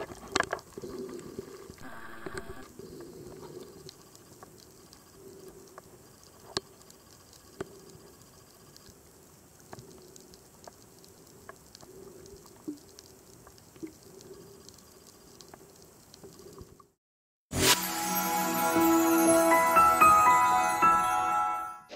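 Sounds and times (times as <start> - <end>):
small underwater clicks and pops: 0.0 - 17.0.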